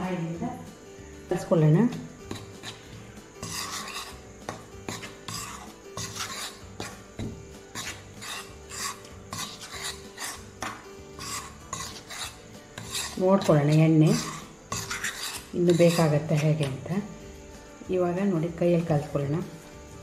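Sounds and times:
metal spoon scraping a pan: 1.9 - 17.0.

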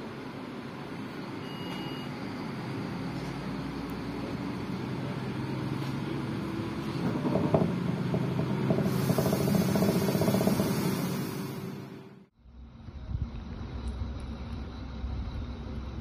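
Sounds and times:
railcar engine drone: 0.0 - 16.0
wheel and rail noise: 0.0 - 16.0
hiss: 8.7 - 12.2.

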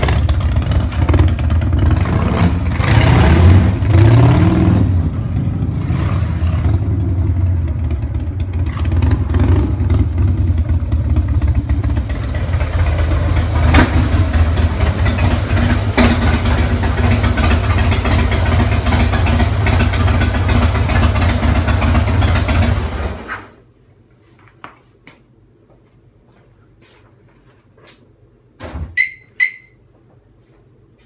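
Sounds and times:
motorcycle engine idling: 0.0 - 2.0, 6.8 - 23.0
short high squeaks: 29.0 - 29.9.

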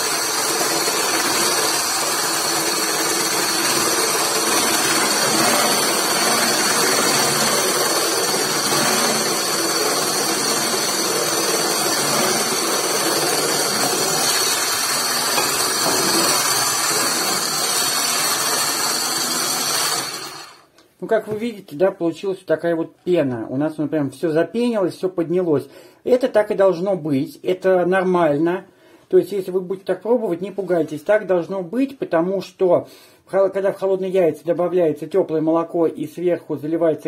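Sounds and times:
electric hand blender whirring: 0.0 - 20.7.

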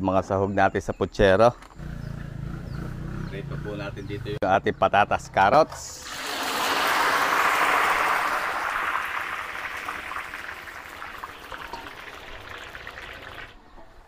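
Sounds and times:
vegetables deep-frying in oil: 6.0 - 13.6.

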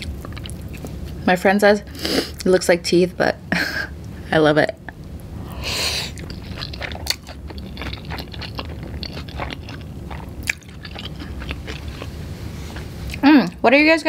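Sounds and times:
wet chewing: 0.0 - 1.0, 6.0 - 13.6.

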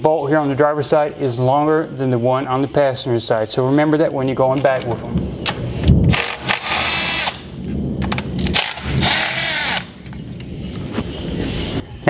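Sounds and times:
power tool motor whining: 6.2 - 7.4, 8.5 - 9.9.

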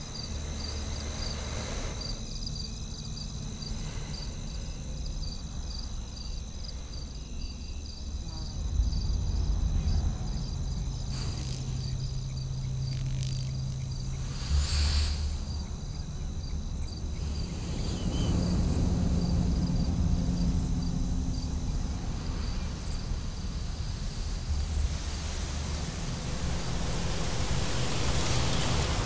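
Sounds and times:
insects chirring: 0.0 - 29.0
low steady rumble: 0.0 - 29.0.

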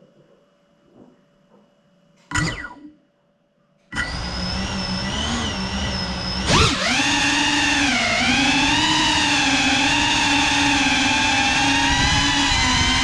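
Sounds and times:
quadcopter motors whining: 2.3 - 2.8, 3.9 - 13.0.

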